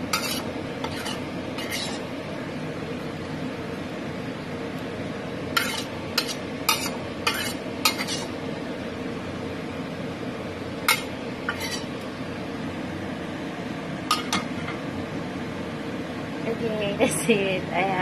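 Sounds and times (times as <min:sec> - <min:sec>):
metal spatula scraping a wok: 0:00.0 - 0:02.1, 0:05.5 - 0:08.4, 0:10.9 - 0:12.0.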